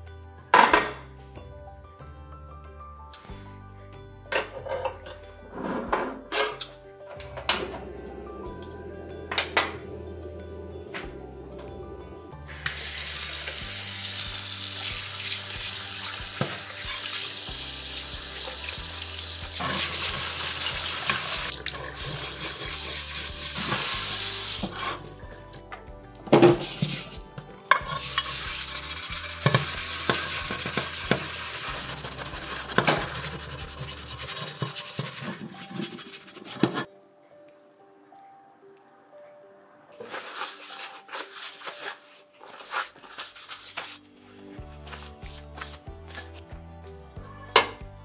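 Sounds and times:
quiet background music: 0.0s - 48.0s
tap water running onto metal plate: 12.6s - 24.8s, 27.9s - 35.3s
brush scrubbing metal plate: 18.4s - 24.8s, 26.5s - 27.2s, 27.8s - 36.9s.

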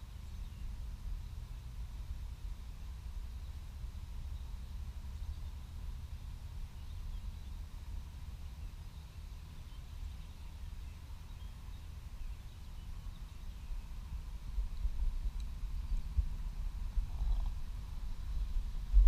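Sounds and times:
low rumble: 12.0s - 19.0s.

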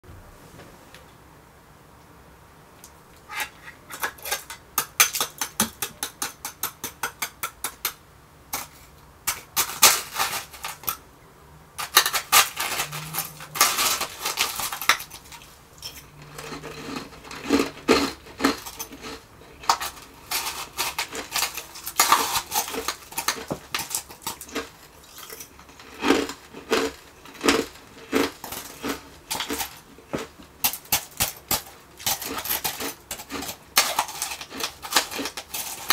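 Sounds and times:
ice crunching: 11.8s - 30.3s, 31.2s - 35.9s
ice being chewed: 11.8s - 35.9s.

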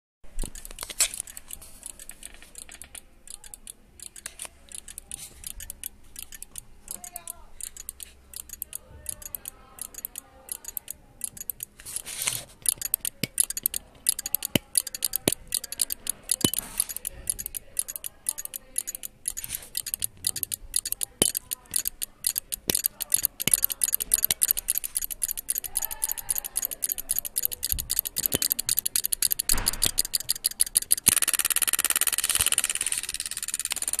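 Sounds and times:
relays clicking: 0.3s - 34.0s.

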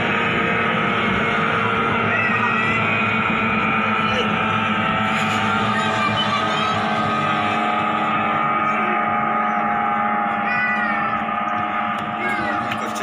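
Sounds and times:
outboard motors droning: 0.0s - 13.0s.

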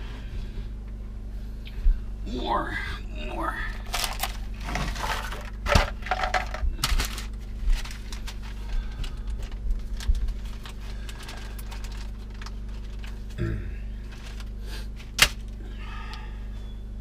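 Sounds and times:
steady low hum: 0.0s - 17.0s
tools clicking and clattering: 4.0s - 8.2s.

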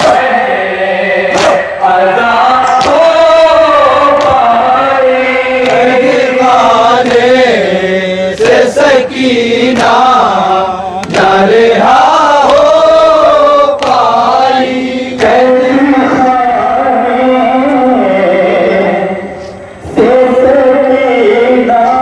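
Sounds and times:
men chanting a lament in unison: 0.0s - 22.0s
hands slapping chests: 1.3s - 1.6s, 2.6s - 3.1s.

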